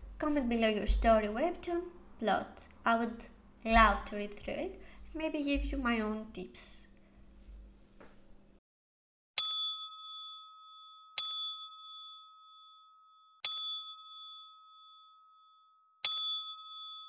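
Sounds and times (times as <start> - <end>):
bell dinging: 9.4 - 17.0.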